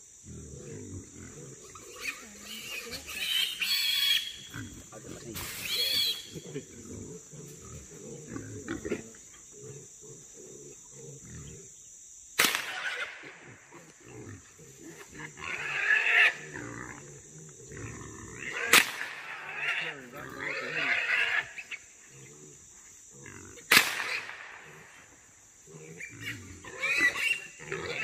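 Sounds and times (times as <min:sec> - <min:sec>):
hogs grunting: 0:00.2 - 0:11.8, 0:12.9 - 0:28.0
hog squealing: 0:01.9 - 0:04.4, 0:05.4 - 0:06.4
rifle shots: 0:12.4 - 0:13.3, 0:18.7 - 0:19.3, 0:23.7 - 0:24.6.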